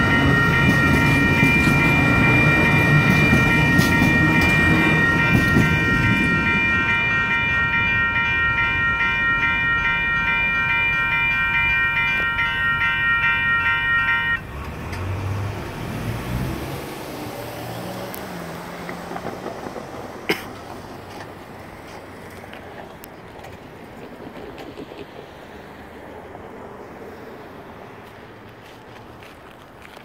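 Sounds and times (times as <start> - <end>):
crossing signal bells ringing: 0.0 - 14.8
train rumbling: 0.0 - 30.0.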